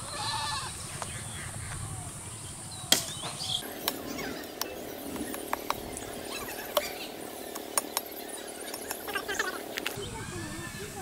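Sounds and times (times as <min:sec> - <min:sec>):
machete chopping branch: 0:02.9 - 0:04.0.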